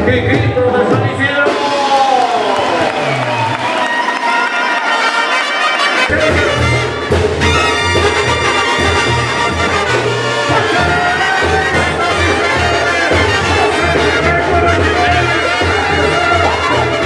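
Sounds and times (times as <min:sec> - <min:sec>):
trumpets and trombones melody: 0:04.4 - 0:17.0.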